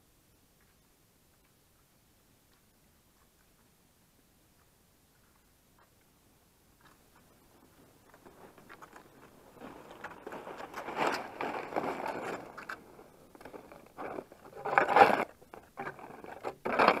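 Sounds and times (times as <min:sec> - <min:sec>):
skis scraping over snow: 0:07.1 - 0:17.0
ski poles striking snow: 0:08.1 - 0:17.0.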